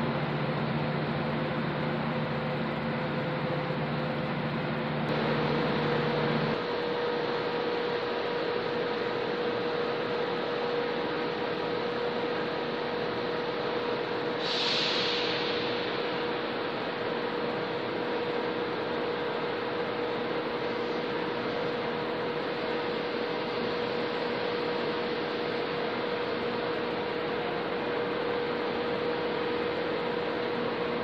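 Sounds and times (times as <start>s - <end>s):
trains humming at platform: 0.0s - 31.0s
short hiss: 14.4s - 16.4s.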